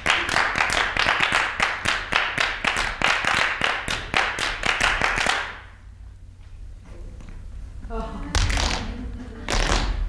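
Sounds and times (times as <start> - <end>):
group clapping in rhythm: 0.0 - 5.8, 9.5 - 10.0.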